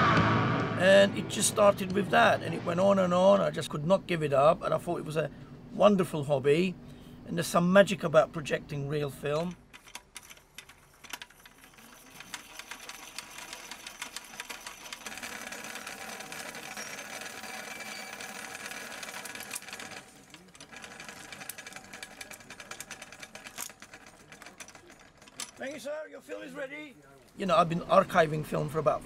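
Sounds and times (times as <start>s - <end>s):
film rewinder clattering: 9.5s - 25.7s.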